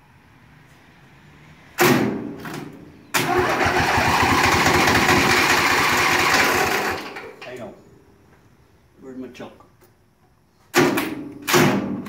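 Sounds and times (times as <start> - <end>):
engine cranking: 3.2 - 7.3
lawn tractor engine running: 3.2 - 7.4.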